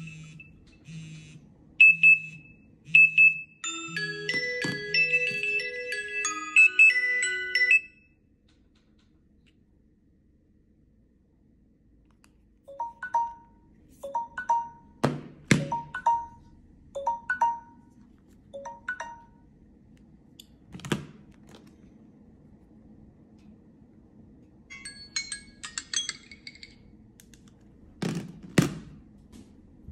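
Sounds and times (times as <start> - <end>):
phone alarm chime: 3.0 - 8.1, 12.7 - 15.0, 15.6 - 17.9, 18.6 - 19.4
high bell-like alarm tone: 3.6 - 8.1, 15.6 - 16.4.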